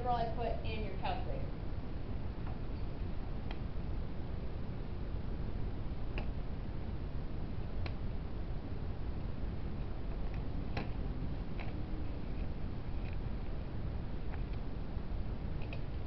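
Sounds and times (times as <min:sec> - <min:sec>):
low room hum: 0:00.0 - 0:16.0
faint clicks and taps: 0:15.6 - 0:16.0.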